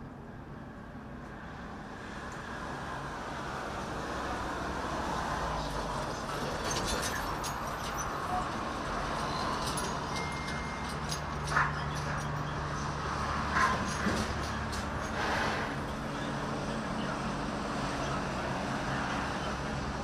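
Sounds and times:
engine and traffic rush: 0.0s - 20.0s.

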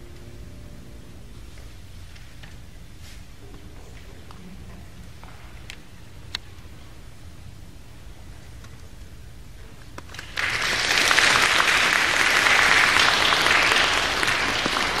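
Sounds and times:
audience applauding: 10.1s - 15.0s.

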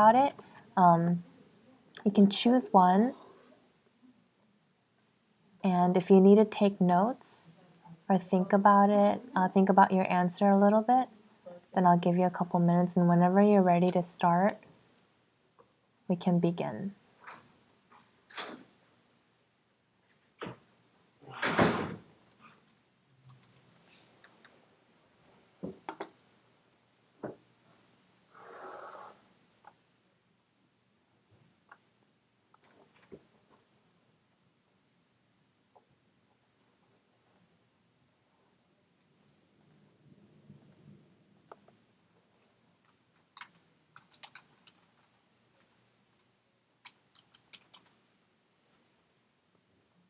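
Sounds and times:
faint irregular clicks: 4.9s - 5.7s, 31.3s - 31.9s, 37.2s - 37.6s, 39.0s - 39.9s, 40.5s - 41.8s, 42.8s - 49.8s.

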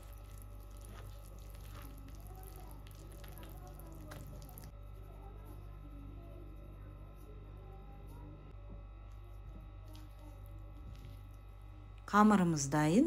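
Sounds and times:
whisk squelching in dough: 0.0s - 5.6s
low steady hum: 0.0s - 13.0s.

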